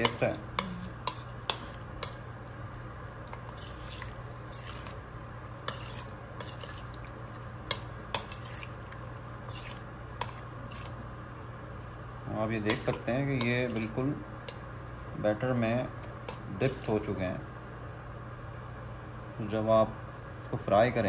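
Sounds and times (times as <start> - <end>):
utensil stirring thick batter: 0.0 - 11.1, 12.4 - 14.7, 15.5 - 17.4
utensil clinking against bowl: 12.7 - 14.6.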